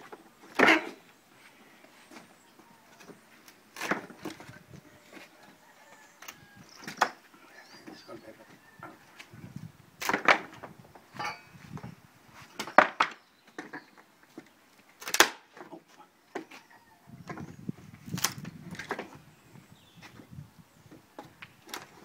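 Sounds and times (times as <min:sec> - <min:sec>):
wooden boards cracking and knocking: 0:00.5 - 0:01.0, 0:03.8 - 0:04.5, 0:10.0 - 0:10.8, 0:12.6 - 0:13.9, 0:15.0 - 0:15.8.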